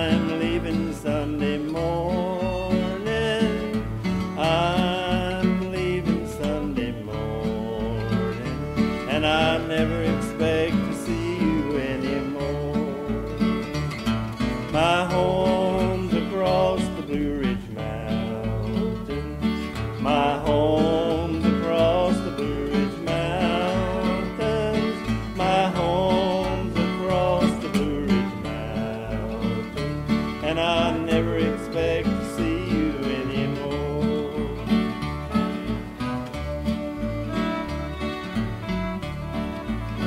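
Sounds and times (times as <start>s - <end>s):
acoustic guitars strumming: 0.0s - 40.0s
fiddle bowing: 0.0s - 40.0s
wavering lead melody: 34.4s - 40.0s.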